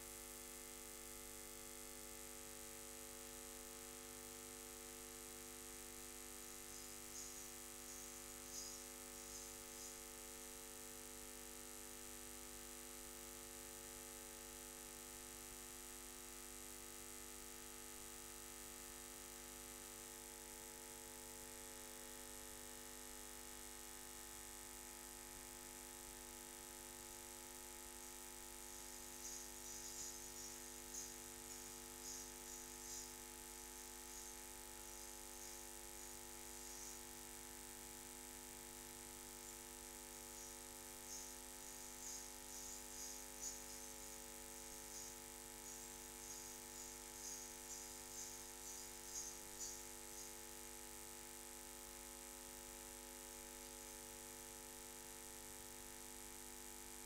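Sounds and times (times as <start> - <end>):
steady low hum: 5.7 - 10.8, 25.1 - 51.5.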